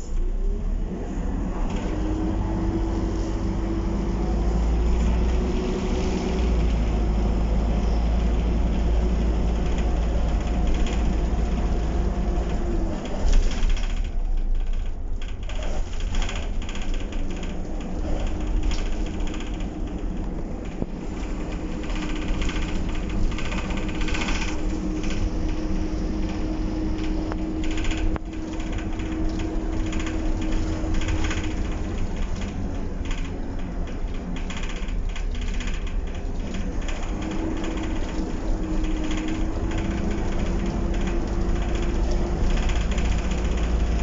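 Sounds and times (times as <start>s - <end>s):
bus body rattling: 0.0s - 44.0s
bus diesel engine rumbling: 0.0s - 44.0s
engine whine: 17.1s - 44.0s.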